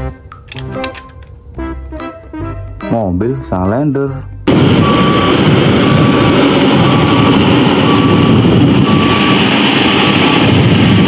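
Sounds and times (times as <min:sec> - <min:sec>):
road roller diesel engine: 0:04.3 - 0:11.0.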